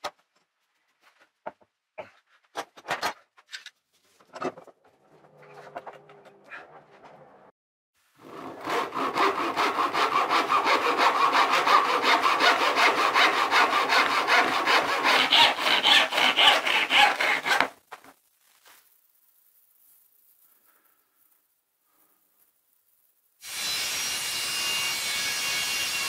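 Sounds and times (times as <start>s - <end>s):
handsaw cutting wood: 8.2s - 17.8s, 23.4s - 26.0s.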